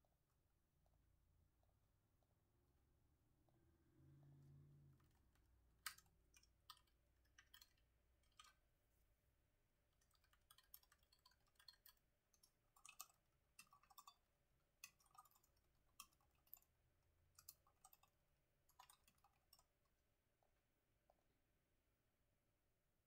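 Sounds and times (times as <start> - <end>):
typing on computer keyboard: 5.8 - 8.6, 10.0 - 16.7, 17.3 - 19.9.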